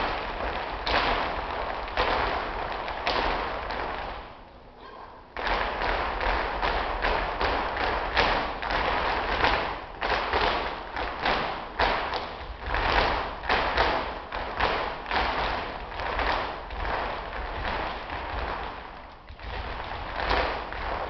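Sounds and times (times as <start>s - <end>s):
dance shoes stamping on wooden floor: 0.0s - 4.3s, 5.3s - 21.0s.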